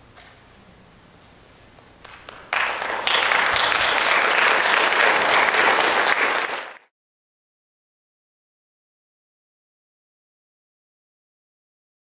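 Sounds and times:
audience applauding: 2.0s - 6.9s.

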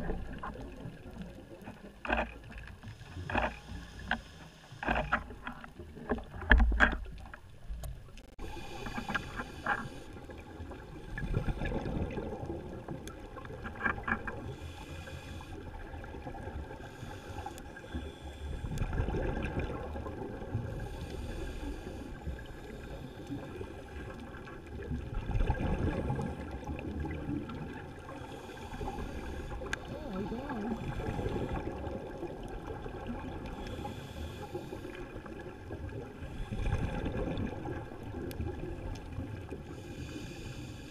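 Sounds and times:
exhaled bubbles rumbling: 0.0s - 2.9s, 10.2s - 14.6s, 18.5s - 21.1s, 22.2s - 33.9s, 34.8s - 39.8s
scuba regulator breathing: 8.4s - 10.4s, 14.4s - 16.0s, 16.8s - 18.9s, 20.7s - 23.9s, 28.1s - 32.0s, 33.4s - 35.3s, 36.2s - 37.0s, 39.6s - 40.9s.

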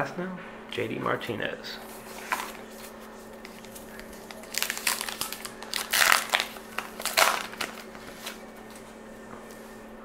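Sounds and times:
paper wrapper crinkling and tearing: 2.1s - 8.4s.

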